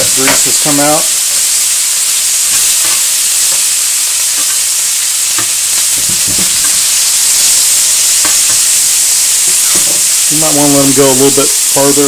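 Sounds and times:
bacon sizzling in a skillet: 0.0s - 12.0s
light knocks in a pan: 5.4s - 6.8s.

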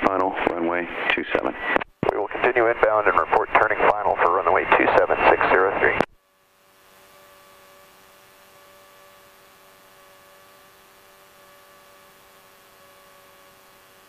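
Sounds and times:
faint radio hum and hiss: 0.0s - 14.0s.

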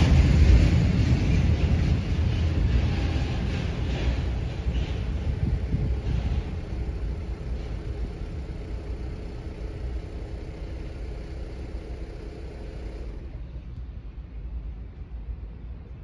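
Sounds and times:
low vehicle rumble: 0.0s - 16.0s
faint steady hum: 5.3s - 16.0s.

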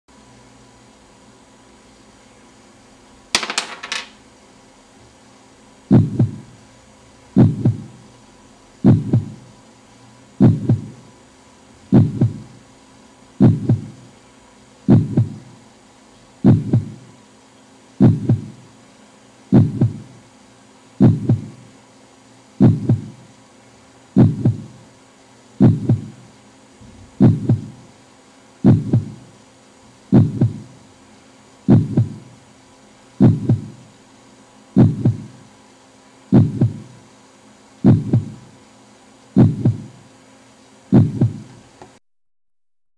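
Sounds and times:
faint steady hum: 0.1s - 42.0s
dull heartbeat-like thuds: 5.9s - 6.5s, 7.4s - 8.0s, 8.8s - 9.4s, 10.4s - 11.0s, 11.9s - 12.6s, 13.4s - 14.0s, 14.9s - 15.4s, 16.4s - 17.1s, 18.0s - 18.6s, 19.5s - 20.1s, 21.0s - 21.6s, 22.6s - 23.2s, 24.2s - 24.8s, 25.6s - 26.2s, 27.1s - 27.8s, 28.6s - 29.3s, 30.1s - 30.7s, 31.7s - 32.3s, 33.2s - 33.8s, 34.8s - 35.3s, 36.3s - 36.9s, 37.8s - 38.5s, 39.4s - 40.0s, 40.9s - 41.5s.

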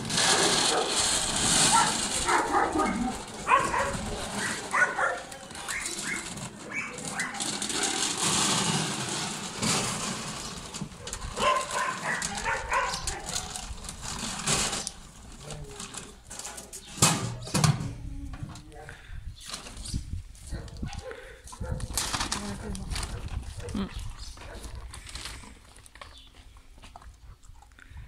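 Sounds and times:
rustling: 0.0s - 17.5s, 21.5s - 27.1s
dogs whining: 1.6s - 8.1s, 11.0s - 13.6s.

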